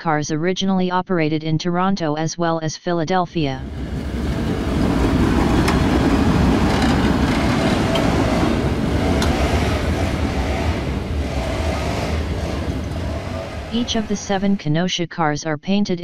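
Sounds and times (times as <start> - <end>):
streetcar wheels rumbling on rails: 3.6 - 14.5
sharp rail clicks: 4.3 - 13.8.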